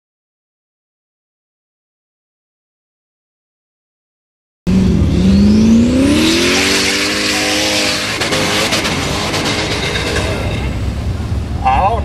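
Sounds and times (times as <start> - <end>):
buggy engine revving: 4.7 - 12.0.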